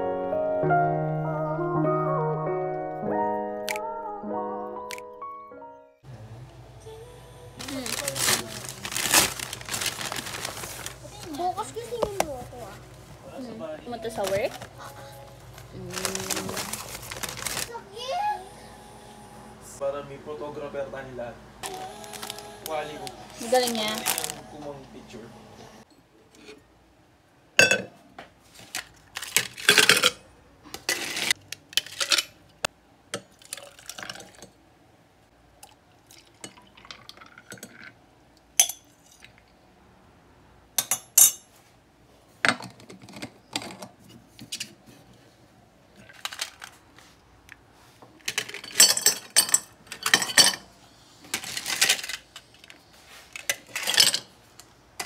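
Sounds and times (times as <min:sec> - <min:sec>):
ice cubes clinking into cups: 0:07.6 - 0:11.0, 0:15.8 - 0:17.7, 0:21.6 - 0:24.5, 0:29.1 - 0:30.2, 0:33.4 - 0:34.5, 0:36.1 - 0:38.0, 0:48.2 - 0:50.7, 0:51.3 - 0:52.7, 0:53.4 - 0:54.3.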